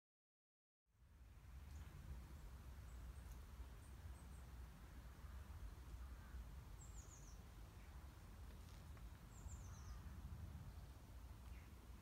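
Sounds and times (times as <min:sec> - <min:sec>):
faint high bird chirps: 0:06.0 - 0:08.0, 0:09.3 - 0:10.1.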